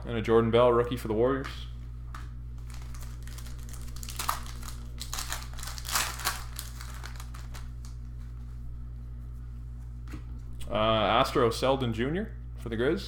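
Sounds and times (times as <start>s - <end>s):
steady low hum: 0.0s - 13.0s
foil wrapper tearing and crinkling: 2.6s - 8.1s.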